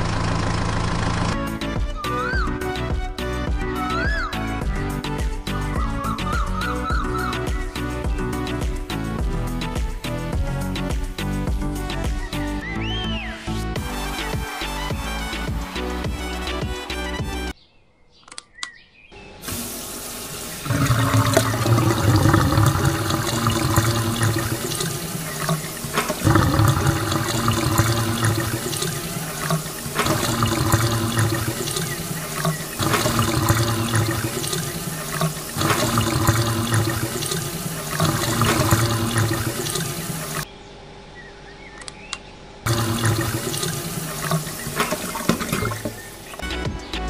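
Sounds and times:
water splashing onto soil: 0:20.4 - 0:40.4.

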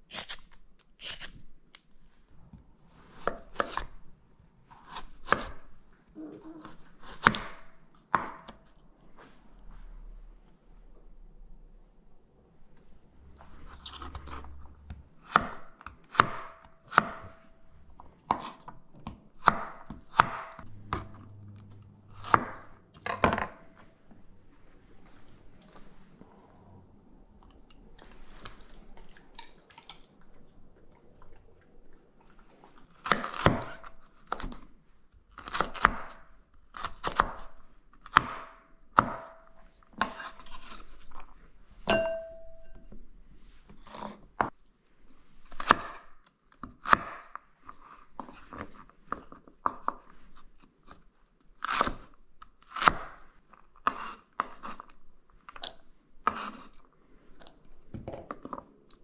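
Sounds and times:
knife chopping celery on board: 0:03.2 - 0:03.9, 0:04.8 - 0:05.7, 0:15.2 - 0:17.5, 0:18.2 - 0:21.1, 0:33.0 - 0:34.6, 0:35.4 - 0:39.4, 0:40.0 - 0:40.9, 0:45.5 - 0:47.3, 0:53.8 - 0:54.9, 0:56.2 - 0:56.7.

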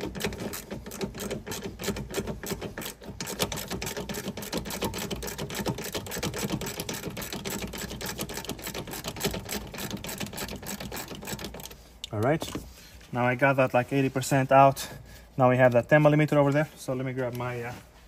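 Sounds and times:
ratchet wrench clicking: 0:00.0 - 0:12.2.

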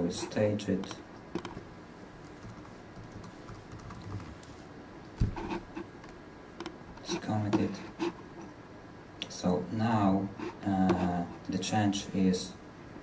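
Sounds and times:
typing on computer keyboard: 0:01.4 - 0:01.6, 0:02.2 - 0:04.3.

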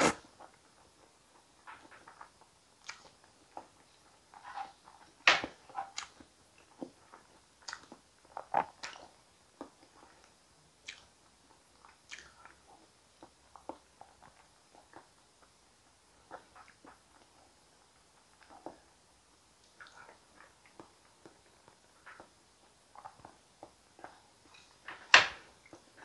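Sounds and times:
wet chewing and mouth smacks: 0:02.8 - 0:03.8, 0:05.9 - 0:15.6, 0:19.6 - 0:24.7.

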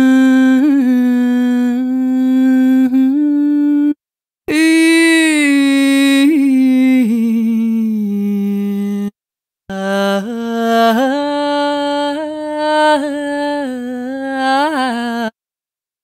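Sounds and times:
person singing long ornamented notes: 0:00.0 - 0:15.4.

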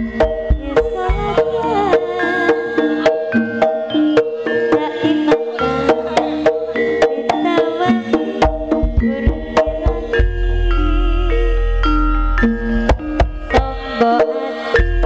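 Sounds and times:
hand drum strokes: 0:00.0 - 0:11.2
ringing metal keyed instruments: 0:00.0 - 0:15.0
deep low tone: 0:08.8 - 0:13.7.

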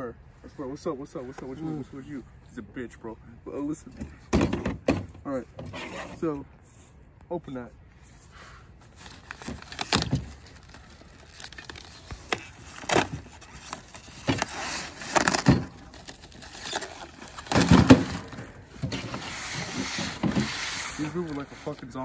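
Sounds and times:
cardboard ripping: 0:08.9 - 0:21.8.

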